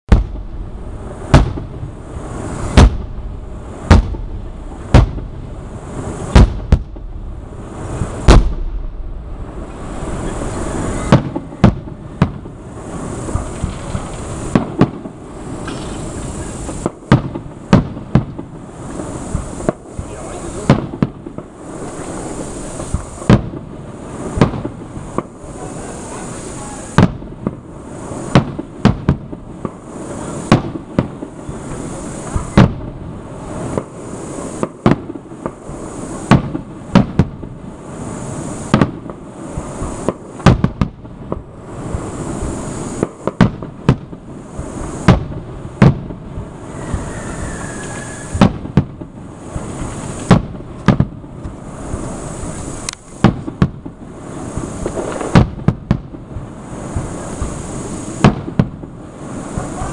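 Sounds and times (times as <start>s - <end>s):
fireworks bursting: 0.1s - 59.9s
fireworks crackling: 0.1s - 59.9s
falling whistle: 46.6s - 48.4s.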